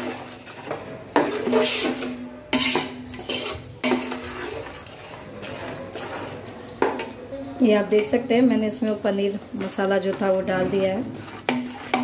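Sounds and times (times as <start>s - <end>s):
metal spoon scraping pot: 0.0s - 7.2s, 9.6s - 12.0s.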